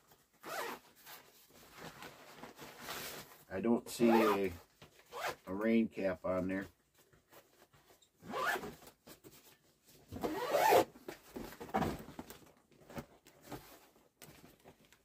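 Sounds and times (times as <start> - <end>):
zipper being pulled: 0.4 - 0.8, 8.3 - 8.6, 10.2 - 10.9.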